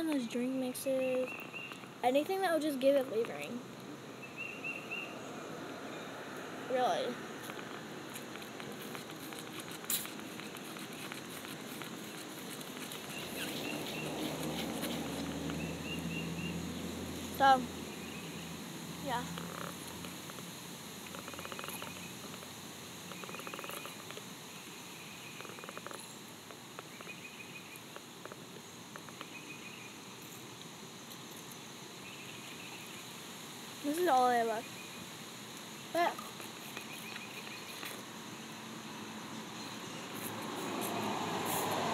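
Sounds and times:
steady hiss: 0.0s - 41.9s
high bird chirps: 13.0s - 16.6s.

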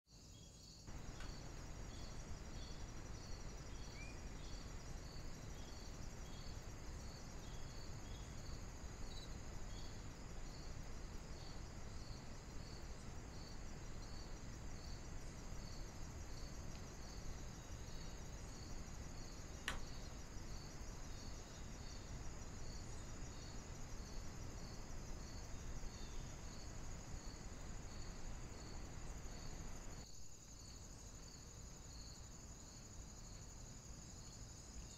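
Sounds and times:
crickets chirping: 0.1s - 34.9s
high insect trill: 0.1s - 34.9s
low steady noise: 0.2s - 34.9s
sharp click: 19.6s - 19.9s.

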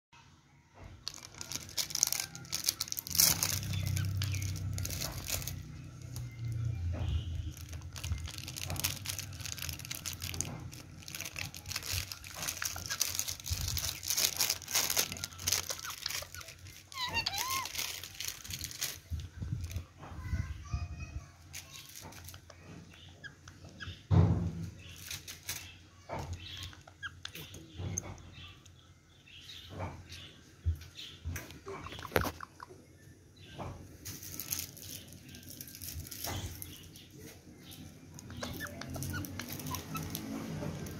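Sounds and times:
sweets shaken into plastic bowl: 1.0s - 5.6s, 7.5s - 19.8s
foil packet crinkling: 1.0s - 6.6s, 7.4s - 19.8s, 34.0s - 37.0s.

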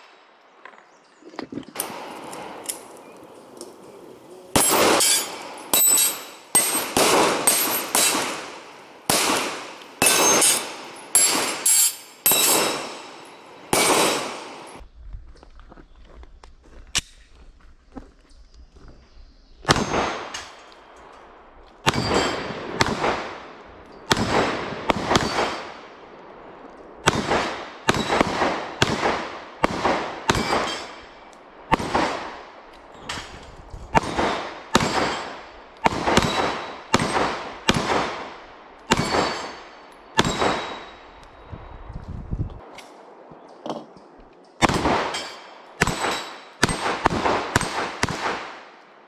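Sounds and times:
pistol shots with echo: 4.6s - 14.8s, 21.8s - 26.0s, 27.0s - 32.5s, 34.0s - 41.2s, 44.6s - 48.8s
steel plates clanging: 4.6s - 14.8s.

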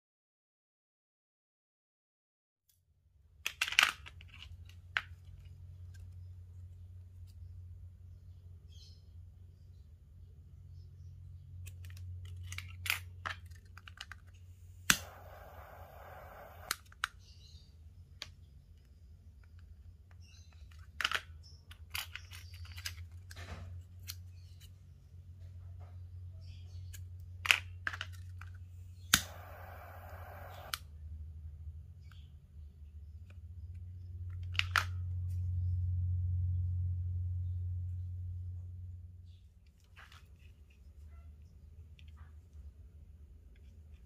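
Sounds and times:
jet flame hissing: 14.6s - 16.8s, 28.9s - 30.8s
torch lighter clicking: 14.8s - 16.9s, 29.0s - 30.8s.

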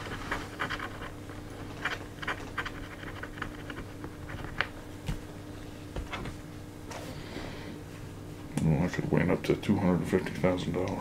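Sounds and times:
lottery ticket scratching: 0.0s - 4.6s.

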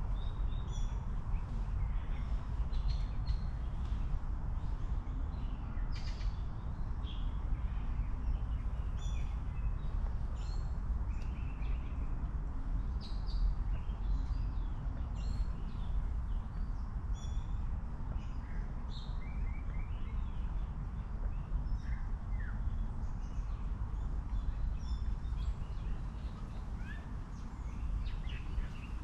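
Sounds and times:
small birds chirping: 12.8s - 29.0s.

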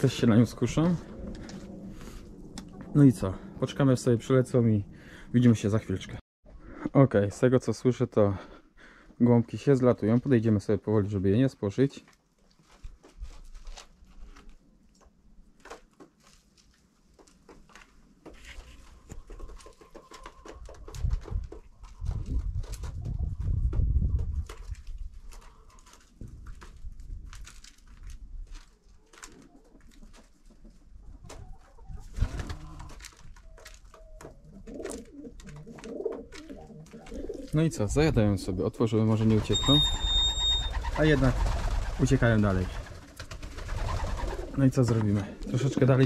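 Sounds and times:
low rumble: 0.0s - 5.4s
slow footsteps: 0.6s - 3.0s
pigeons cooing: 32.0s - 37.6s, 43.7s - 44.6s.

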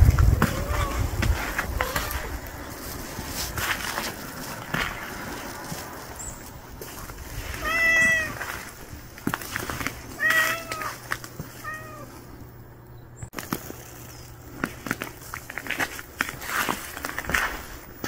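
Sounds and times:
cat meowing: 0.4s - 1.1s, 1.7s - 2.3s, 7.6s - 8.5s, 10.2s - 11.0s, 11.6s - 12.1s.

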